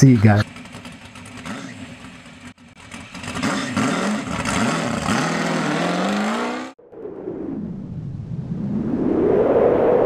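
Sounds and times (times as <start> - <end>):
car engine pulling away: 0.4 - 6.8.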